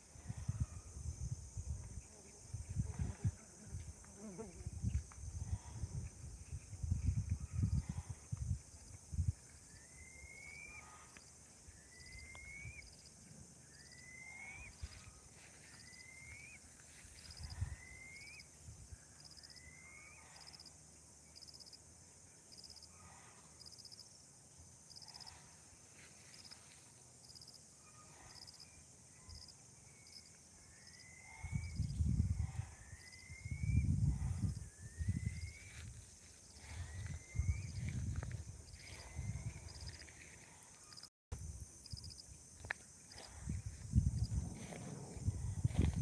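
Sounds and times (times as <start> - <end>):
high insect drone: 0.0 - 46.0
bird calling rising whistle: 9.8 - 11.0, 13.8 - 14.8
low rumble: 43.5 - 46.0.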